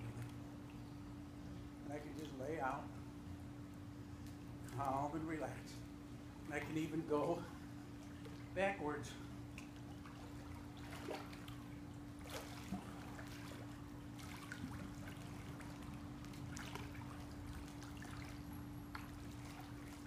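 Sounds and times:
steady low hum: 0.0s - 20.0s
water sloshing and splashing: 6.4s - 20.0s.

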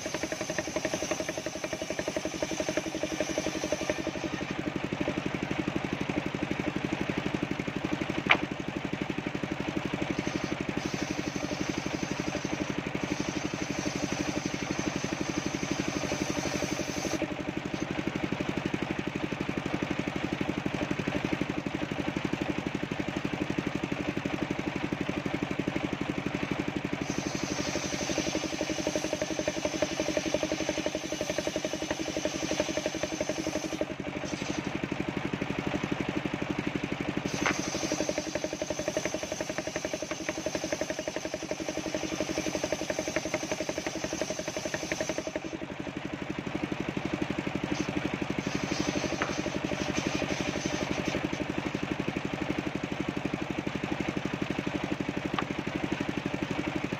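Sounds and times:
saw blade cutting whine: 0.0s - 18.4s, 26.2s - 35.8s, 37.2s - 45.8s, 46.7s - 52.0s
sawmill engine drone: 0.0s - 56.9s
sharp click: 8.2s - 8.5s.

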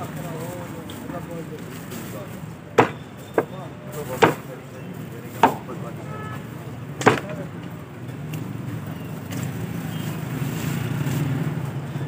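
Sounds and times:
knife chopping on wooden block: 2.8s - 3.5s, 4.2s - 4.5s, 5.4s - 5.7s, 7.0s - 7.4s.

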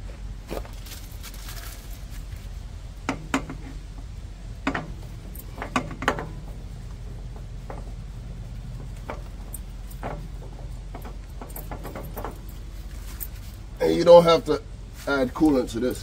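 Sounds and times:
steady low hum: 0.0s - 16.0s
metallic clinks and knocks: 4.6s - 13.7s.

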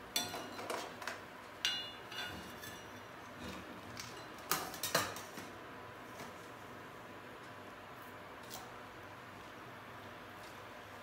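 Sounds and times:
metal spoon clinking against pan: 0.2s - 0.7s, 1.6s - 3.0s.

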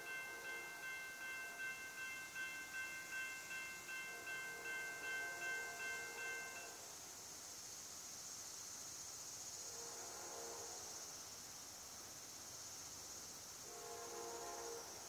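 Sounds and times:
high-pitched insect chorus: 0.0s - 15.0s
distant train horn: 3.9s - 6.8s, 9.7s - 10.9s, 13.7s - 15.0s.

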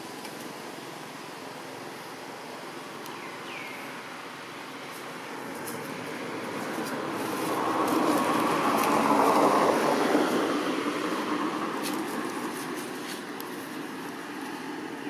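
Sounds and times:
vehicle passing by: 5.2s - 15.0s.

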